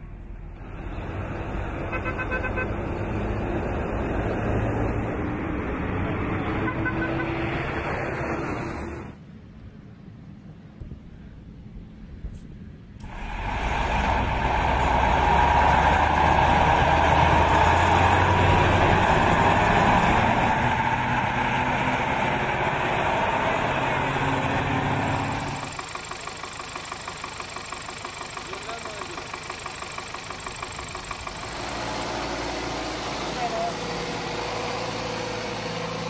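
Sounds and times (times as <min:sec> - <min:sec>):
truck engine running: 0:13.0 - 0:36.0
light engine ticking: 0:25.4 - 0:32.2.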